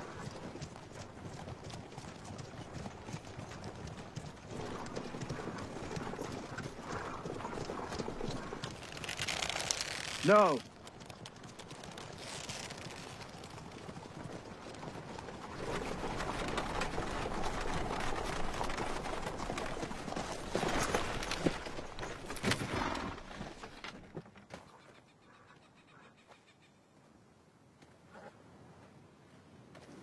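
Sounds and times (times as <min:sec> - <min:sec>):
horse hoofbeats: 0:00.0 - 0:25.0
wheels rumbling on dry ground: 0:00.2 - 0:24.2.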